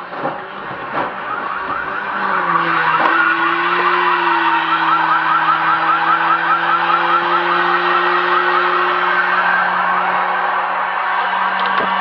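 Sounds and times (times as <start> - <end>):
electronic siren yelping: 1.1 - 10.1.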